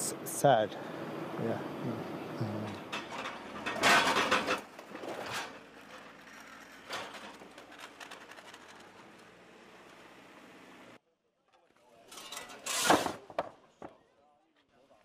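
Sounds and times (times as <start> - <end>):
metal debris clattering and scraping: 2.8 - 10.6, 12.1 - 13.3.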